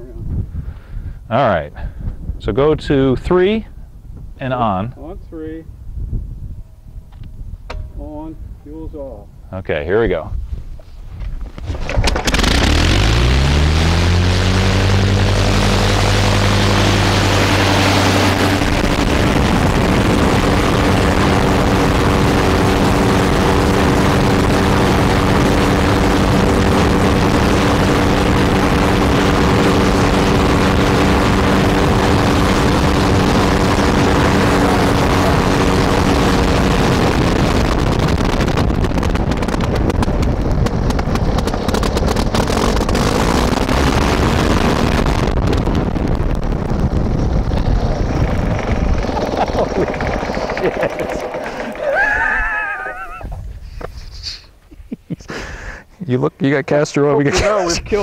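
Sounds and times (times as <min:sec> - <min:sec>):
rotary aero engine running: 0:11.3 - 0:53.6.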